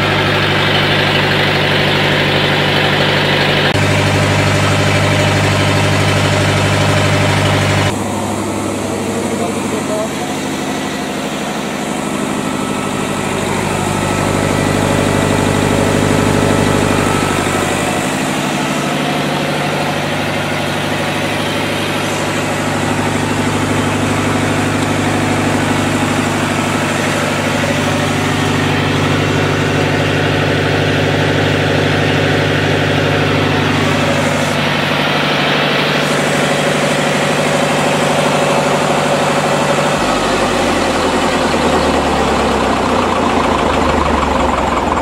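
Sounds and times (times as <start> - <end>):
diesel generator engine running: 0.0 - 45.0.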